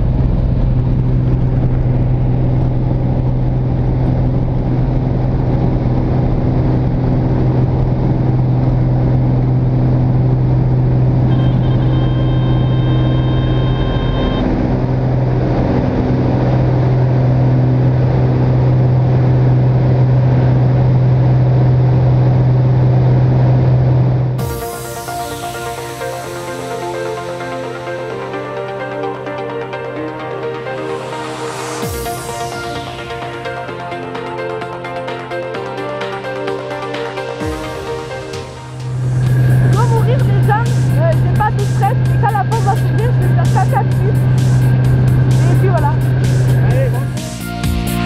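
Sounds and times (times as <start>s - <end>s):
light aircraft engine drone: 0.0s - 48.0s
music: 10.8s - 15.9s, 24.4s - 48.0s
steady high tone: 10.9s - 15.2s, 24.4s - 48.0s.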